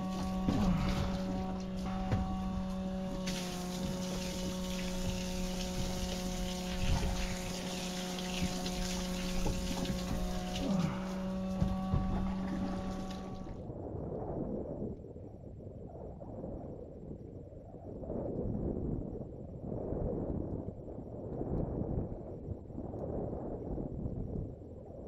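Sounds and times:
water rushing and splashing: 0:00.0 - 0:13.6
motor hum: 0:00.0 - 0:13.7.

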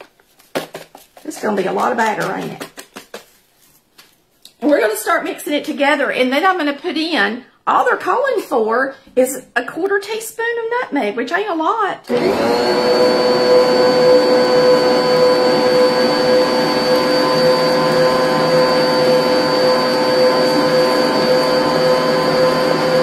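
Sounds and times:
stand mixer motor whine: 0:12.1 - 0:23.0.

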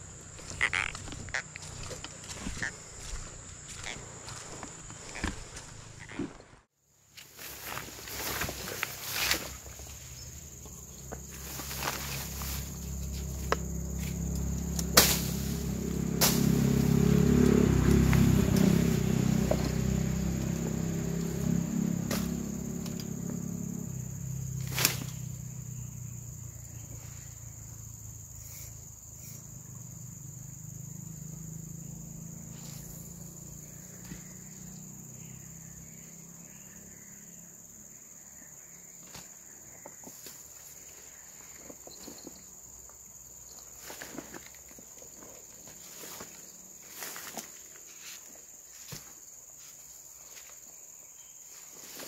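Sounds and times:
insects droning: 0:00.0 - 0:52.0
low hum: 0:09.5 - 0:25.5.

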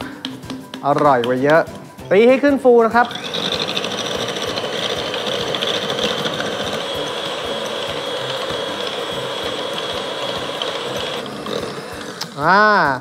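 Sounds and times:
electric hand mixer motor whine: 0:02.8 - 0:12.9.

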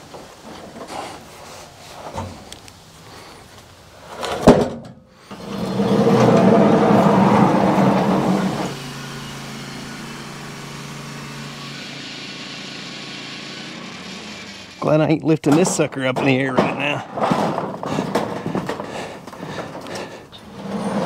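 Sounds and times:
engine revving and idling: 0:05.3 - 0:14.8.

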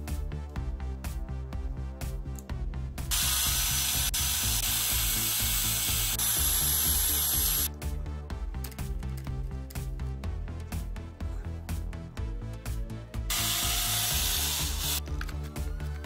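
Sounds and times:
cordless drill whining: 0:13.3 - 0:15.0.

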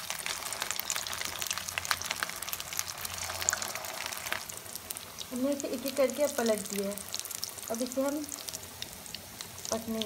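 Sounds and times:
deep-frying sizzle with pops: 0:00.0 - 0:10.0.

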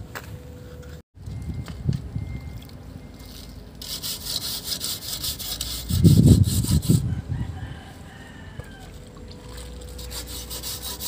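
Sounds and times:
sponge scrubbing rusty metal: 0:03.8 - 0:07.1, 0:09.4 - 0:11.0.

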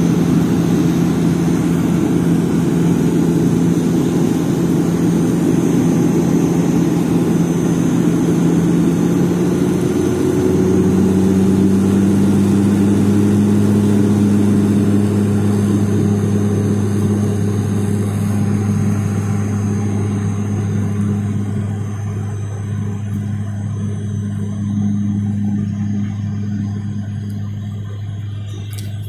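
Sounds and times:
propeller engines droning in cabin: 0:00.0 - 0:29.0.

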